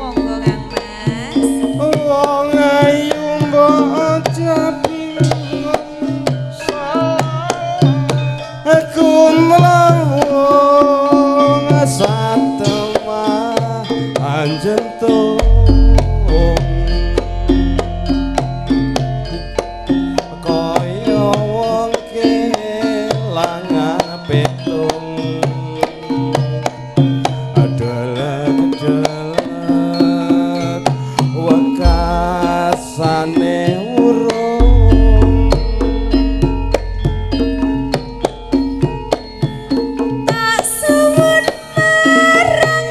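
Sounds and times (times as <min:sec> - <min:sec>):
deep low boom: 0:15.4 - 0:18.2, 0:31.9 - 0:32.7, 0:34.6 - 0:38.8
deep bass: 0:15.4 - 0:19.6, 0:31.8 - 0:32.8, 0:34.6 - 0:39.1
hand drum strokes: 0:15.4 - 0:20.3, 0:31.4 - 0:40.6
gamelan ensemble playing: 0:15.4 - 0:21.6, 0:31.0 - 0:33.8, 0:34.6 - 0:40.4
sliding sustained melody: 0:34.6 - 0:39.1.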